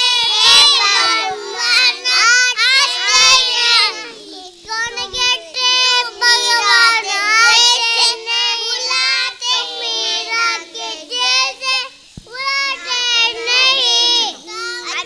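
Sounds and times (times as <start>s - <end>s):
young children singing: 0.0s - 15.0s.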